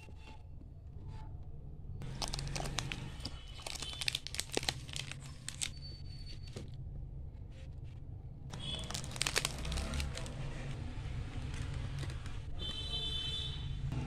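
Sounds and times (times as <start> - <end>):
wrappers crinkling and rustling: 2.0 - 5.8, 8.5 - 10.6.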